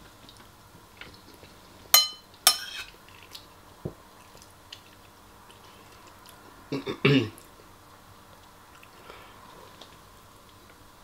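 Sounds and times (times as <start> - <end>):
spoon clinking on ceramic bowl: 2.0 - 2.9.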